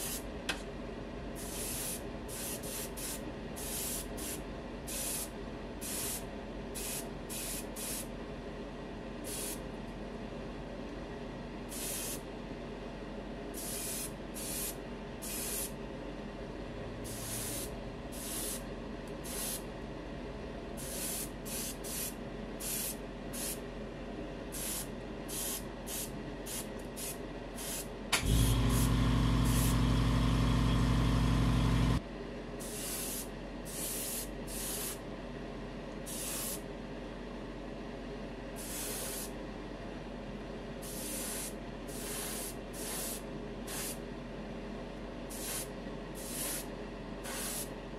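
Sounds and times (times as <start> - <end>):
airbrush spraying hiss: 1.4 - 6.2, 6.8 - 8.1, 9.3 - 9.6, 11.7 - 12.2, 17.1 - 18.6, 19.2 - 19.6, 20.8 - 23.6, 24.6 - 29.8, 32.6 - 35.0, 36.1 - 36.6, 38.6 - 39.3, 40.8 - 44.0, 45.3 - 47.7
compressor motor hum: 28.1 - 32.0.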